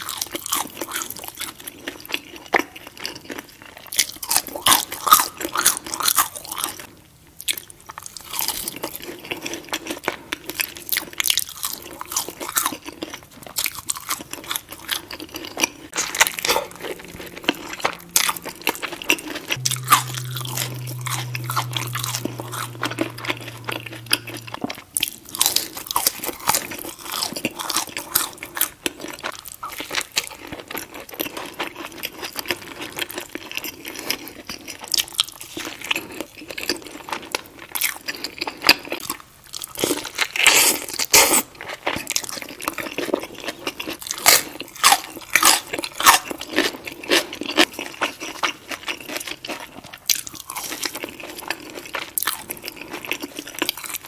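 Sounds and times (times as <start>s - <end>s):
chewing and crunching food: 0.0s - 54.0s
low hum: 16.0s - 25.1s.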